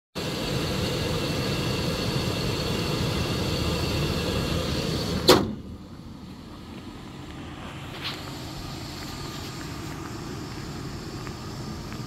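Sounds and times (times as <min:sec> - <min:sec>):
truck engine idling with high whine: 0:00.2 - 0:12.0
hood slamming shut: 0:04.8 - 0:05.8.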